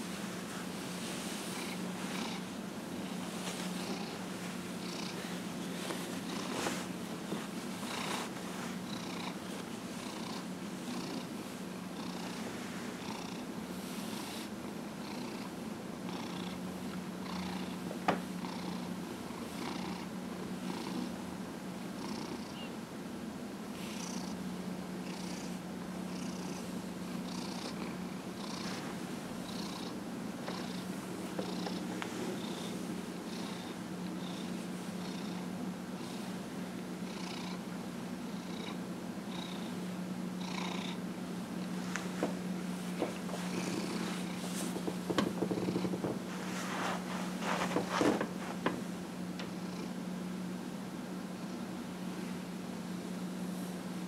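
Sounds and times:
cat purring: 0.0 - 16.6, 17.2 - 17.8, 18.4 - 21.2, 22.0 - 22.7, 23.8 - 24.4, 25.0 - 36.4, 37.0 - 39.8, 40.4 - 41.0, 41.6 - 48.8.

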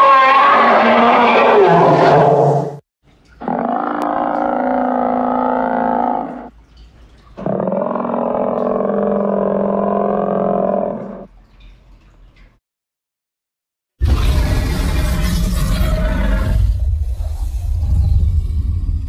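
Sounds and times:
giant monster roar: 0.0 - 2.8, 3.4 - 6.5, 7.4 - 11.3, 14.0 - 19.0.

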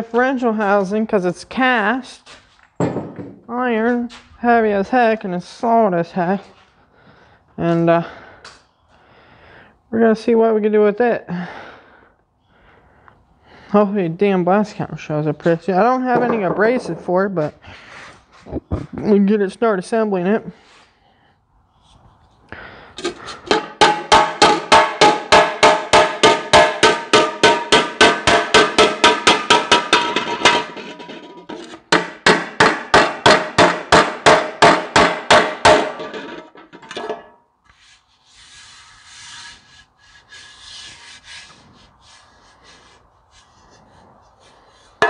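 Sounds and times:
metal cover handling: 23.0 - 33.2, 35.0 - 37.4
hammer beating sheet metal: 23.5 - 37.3.

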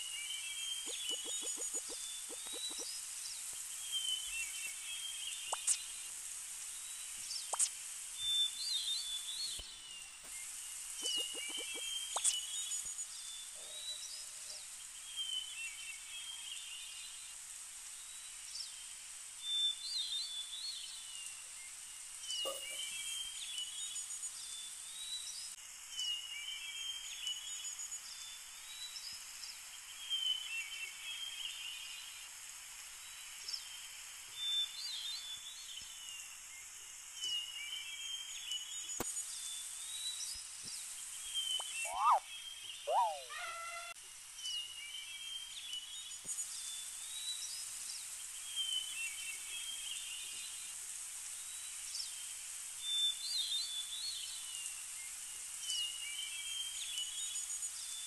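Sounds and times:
steady high-pitched hiss: 0.0 - 58.0
short bird chirps: 0.1 - 3.0, 3.8 - 6.0, 7.3 - 12.9, 41.2 - 44.0.

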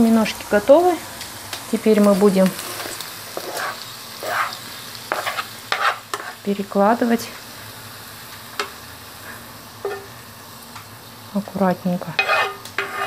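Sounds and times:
food sizzling: 0.0 - 13.0
wooden spatula scraping a pan: 2.5 - 6.4, 9.8 - 10.1, 12.0 - 13.0.

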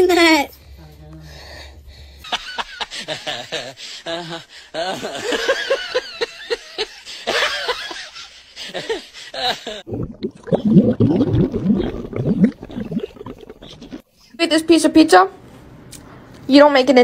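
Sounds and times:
person laughing: 2.6 - 9.8.

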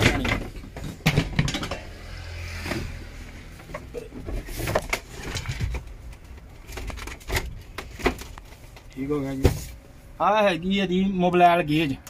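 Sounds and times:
metal seat knocking and rattling: 0.0 - 1.8.

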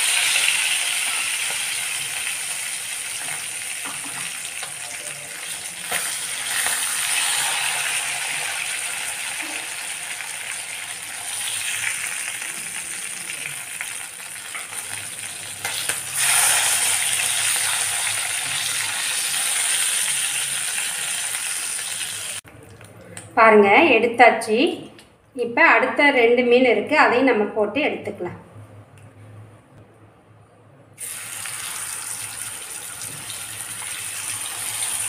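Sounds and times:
fish sizzling in hot oil: 0.0 - 22.4, 31.0 - 35.0.

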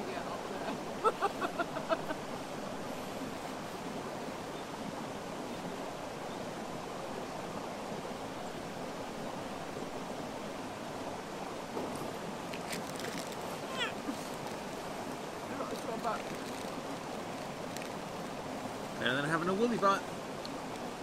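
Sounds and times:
running water rushing: 0.0 - 21.0
person laughing: 1.0 - 2.2.

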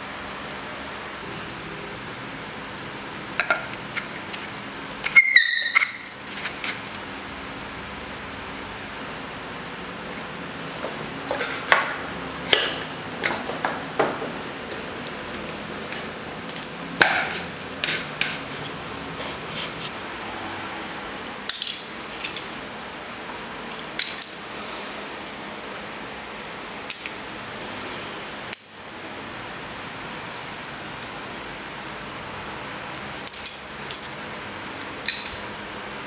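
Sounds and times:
metal parts clattering on tile: 24.0 - 25.6.

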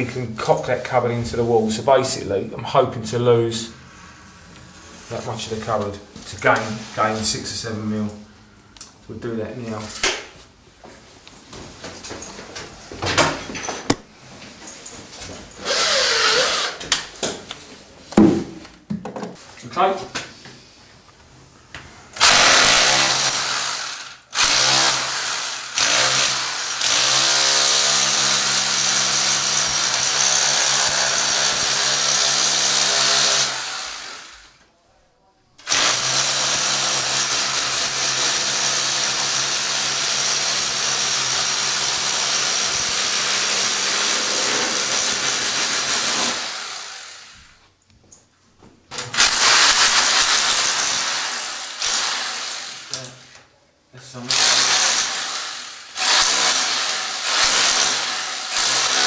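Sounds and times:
power chisel chipping plaster: 22.2 - 34.2, 35.7 - 47.0, 49.2 - 53.0, 54.3 - 59.0.

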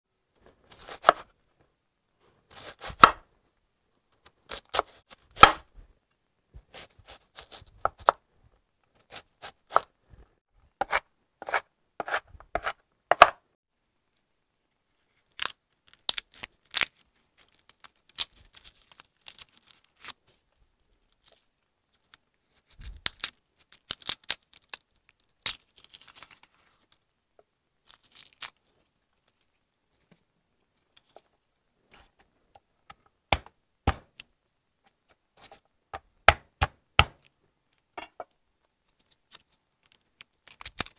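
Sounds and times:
garlic skins crackling and tearing: 15.2 - 20.4, 22.0 - 27.0, 27.8 - 29.5, 38.9 - 40.9.

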